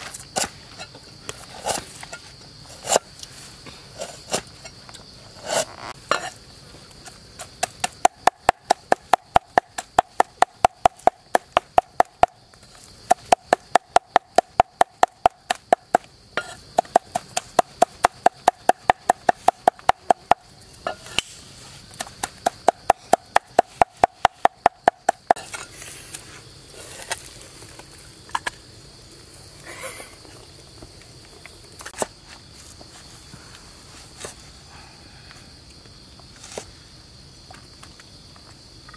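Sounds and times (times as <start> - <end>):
high insect drone: 0.0 - 38.9
light knocks and scrapes: 36.2 - 36.7.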